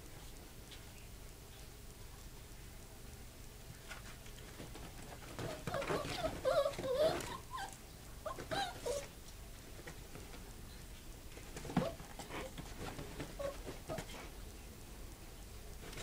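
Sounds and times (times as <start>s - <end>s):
dog scrabbling over clothes: 3.9s - 7.7s, 11.3s - 14.4s
small dog whining: 5.3s - 9.2s, 13.2s - 14.3s.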